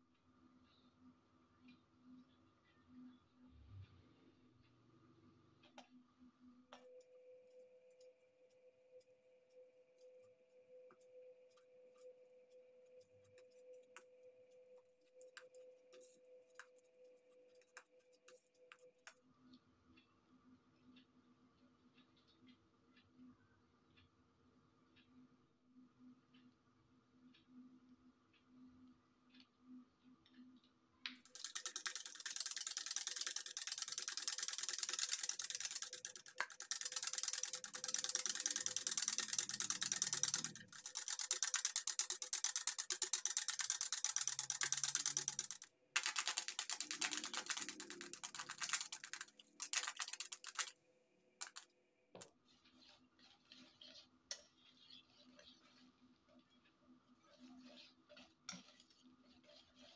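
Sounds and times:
whisk clattering against plastic bowl: 0:31.3 - 0:50.7, 0:51.4 - 0:51.6.

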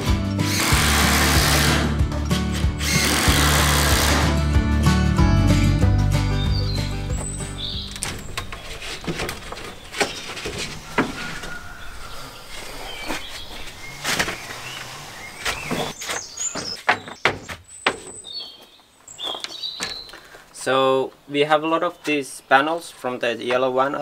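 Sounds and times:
birds chirping: 0:06.3 - 0:23.8
wooden panels knocking together: 0:08.0 - 0:11.4, 0:15.5 - 0:18.2.

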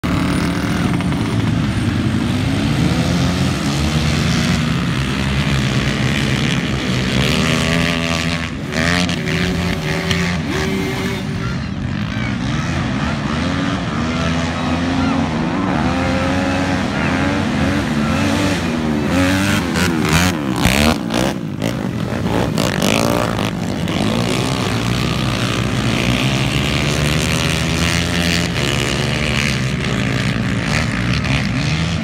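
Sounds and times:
quad engines revving: 0:00.0 - 0:32.0.

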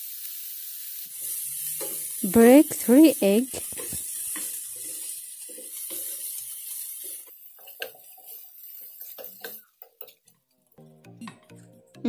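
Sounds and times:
food sizzling in frying pan: 0:00.0 - 0:10.8
spoon scraping pan: 0:01.6 - 0:02.9, 0:03.5 - 0:10.3.

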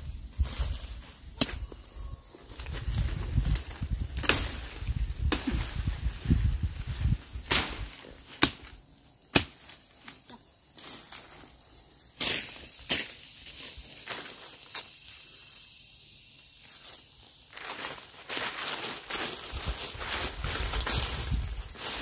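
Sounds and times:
blade swishing through grass: 0:17.0 - 0:22.0.

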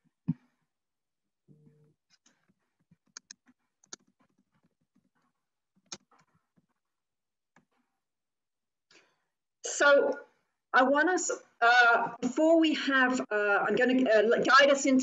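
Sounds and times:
faint clicks and taps: 0:01.5 - 0:07.9.

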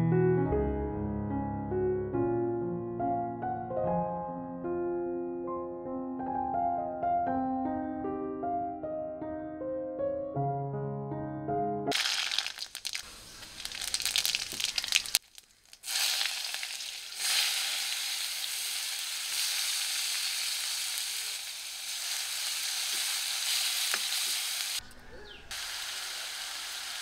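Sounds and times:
mustard seeds popping in hot oil: 0:11.9 - 0:24.8
onion sizzling in oil: 0:11.9 - 0:27.0.

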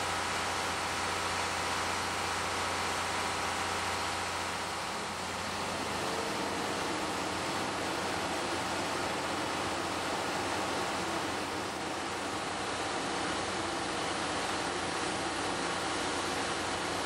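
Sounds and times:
steam hissing: 0:03.2 - 0:17.0.

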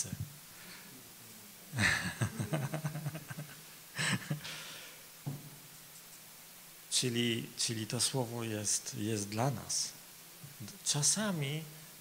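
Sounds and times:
man laughing into a microphone: 0:01.7 - 0:04.6.

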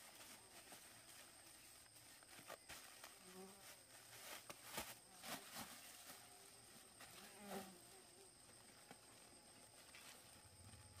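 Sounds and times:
high insect whine: 0:00.0 - 0:11.0
insect buzzing: 0:00.0 - 0:11.0.

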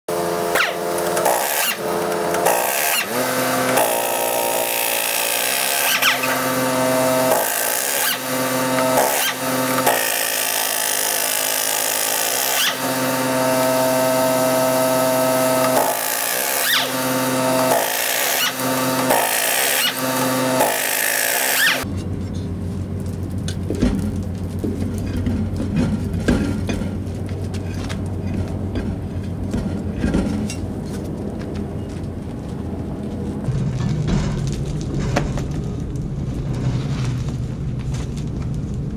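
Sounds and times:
pneumatic impact wrench whine: 0:00.1 - 0:21.9.

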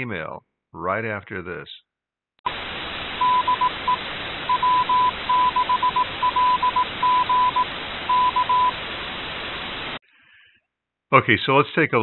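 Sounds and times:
static hiss: 0:02.5 - 0:10.0
morse code beeps: 0:03.2 - 0:08.8.

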